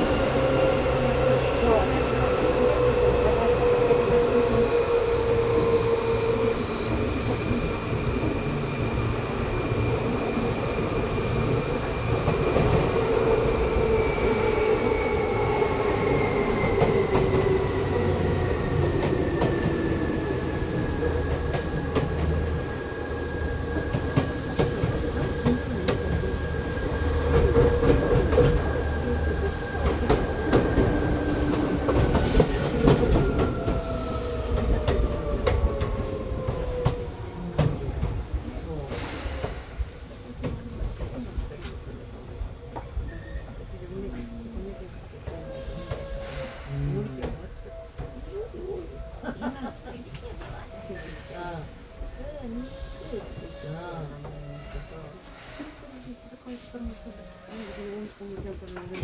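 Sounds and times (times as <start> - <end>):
train wheels clattering on track: 23.6 - 42.0.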